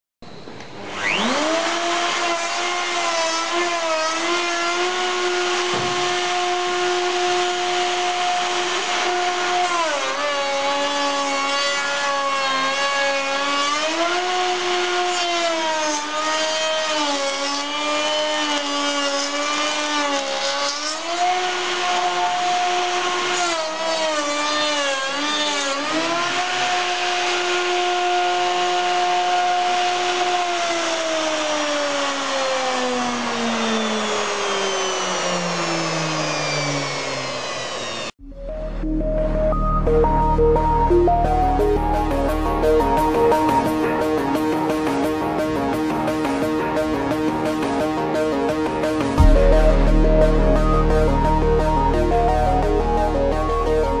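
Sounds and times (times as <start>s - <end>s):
electric router whining: 0.3s - 54.0s
router milling wood: 0.5s - 38.2s.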